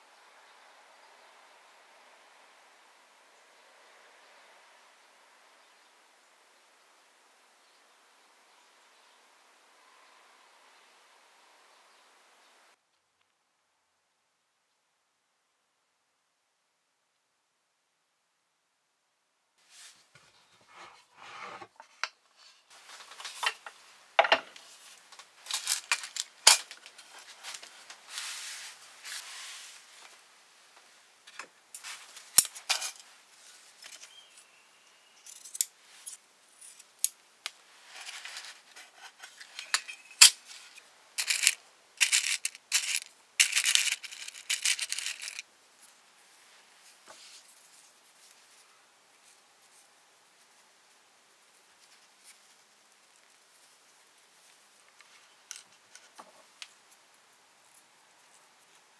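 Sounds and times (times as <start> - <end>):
sliding and rustling: 24.5 - 30.3, 37.5 - 50.7.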